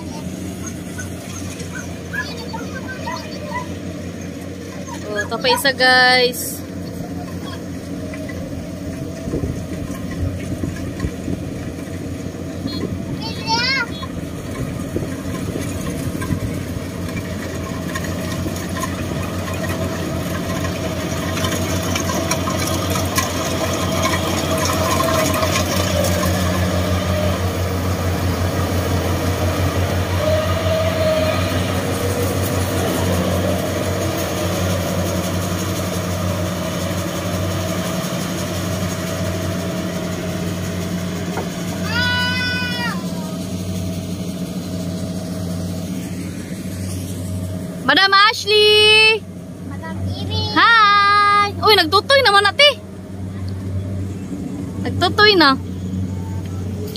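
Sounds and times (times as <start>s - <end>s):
combine harvester engine running: 0.0s - 56.9s.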